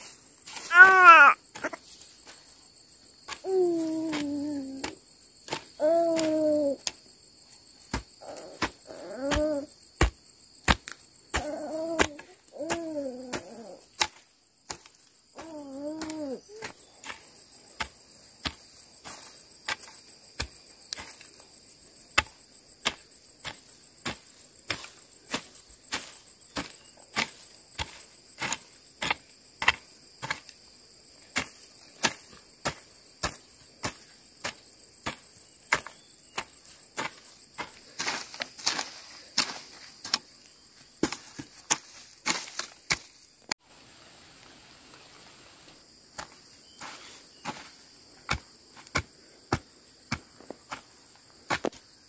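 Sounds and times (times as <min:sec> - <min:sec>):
insect trill: 0:00.0 - 0:52.0
hoe chopping into dry soil: 0:07.9 - 0:15.0, 0:22.2 - 0:30.5, 0:31.3 - 0:40.3, 0:41.0 - 0:43.3, 0:46.1 - 0:51.9.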